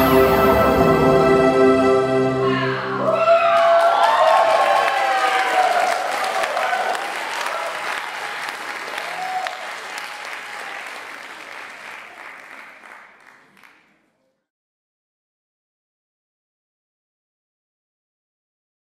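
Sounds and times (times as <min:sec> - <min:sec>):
audience applauding: 0:03.0 - 0:14.0.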